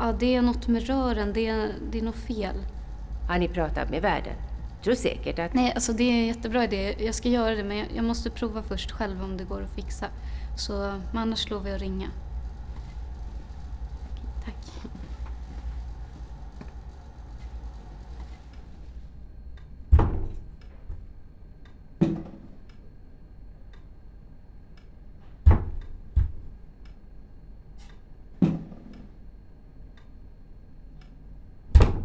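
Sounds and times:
heavy thuds on wooden door: 19.9 - 21.0, 25.4 - 26.5.

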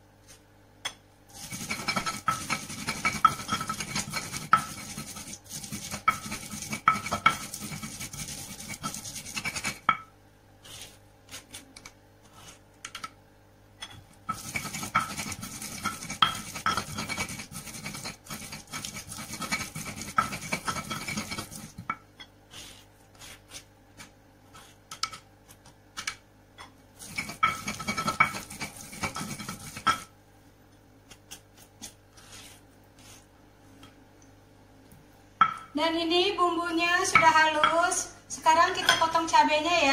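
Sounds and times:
stone pestle grinding on mortar: 1.4 - 10.0, 14.3 - 25.2, 27.0 - 30.1.

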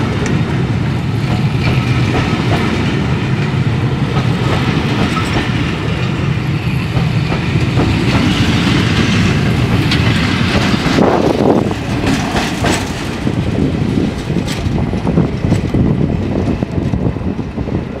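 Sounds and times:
diesel locomotive passing: 0.0 - 18.0
train wheels clicking over rail joints: 0.0 - 18.0.

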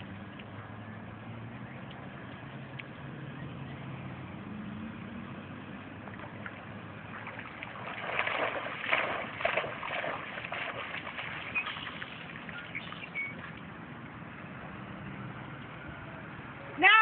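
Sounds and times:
dog splashing through water: 6.1 - 13.5.

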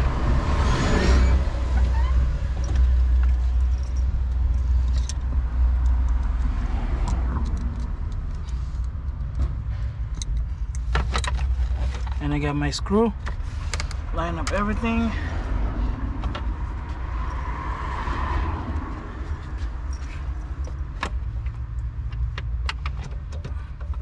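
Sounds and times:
vehicle engine rumbling: 0.0 - 24.0.

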